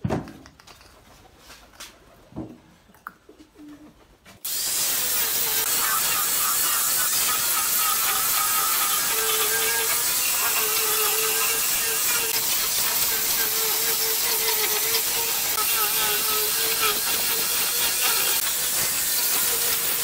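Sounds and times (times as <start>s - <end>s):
angle grinder sanding wood: 4.4s - 20.0s.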